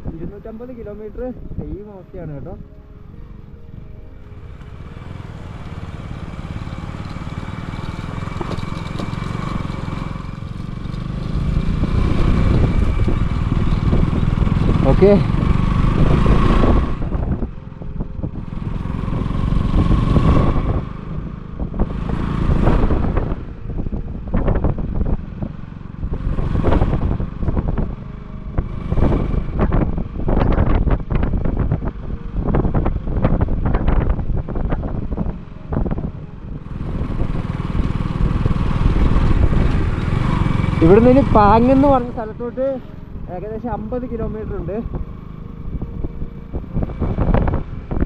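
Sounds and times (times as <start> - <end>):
engine and road rumble: 0.0 - 48.0
vehicle rattling over bumps: 0.0 - 48.0
wind gusting on microphone: 10.8 - 48.0.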